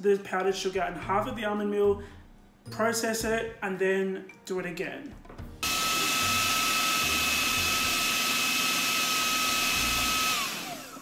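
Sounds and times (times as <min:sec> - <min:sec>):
food processor motor whining: 0:05.6 - 0:11.0.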